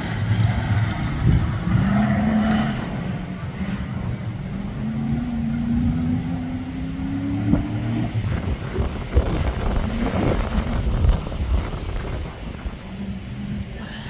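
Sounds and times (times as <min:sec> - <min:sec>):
buggy engine pulling hard: 0:00.0 - 0:14.0
wind thumping on microphone: 0:07.2 - 0:13.8.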